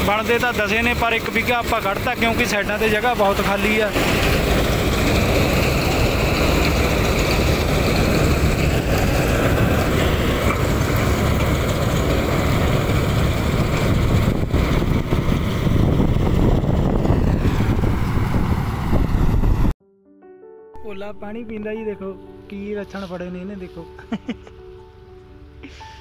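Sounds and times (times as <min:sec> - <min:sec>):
combine harvester engine drone: 0:00.0 - 0:19.7.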